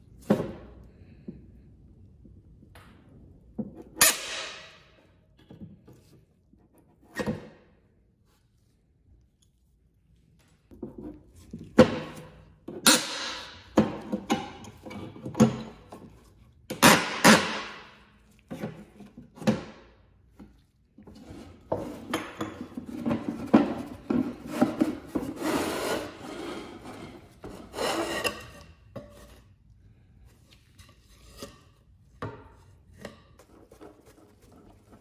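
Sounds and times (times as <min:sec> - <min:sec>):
wood scraping on wood: 0:21.0 - 0:29.5.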